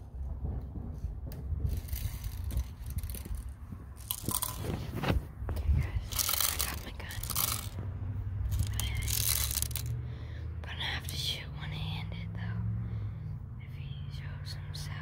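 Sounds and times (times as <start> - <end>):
steady low rumble: 0.0 - 15.0
camera handling rubbing and scraping: 1.7 - 7.8.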